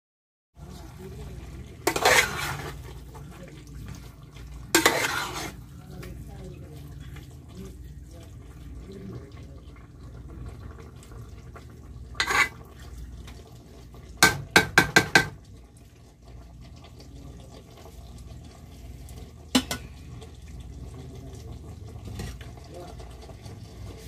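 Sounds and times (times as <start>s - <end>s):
spoon stirring vegetables in pot: 0.6s - 8.4s, 11.5s - 15.4s, 19.2s - 20.0s
spoon scraping pot: 1.8s - 3.0s, 3.8s - 5.7s, 12.2s - 12.9s
spoon knocking against pot: 14.2s - 15.4s, 19.5s - 19.8s.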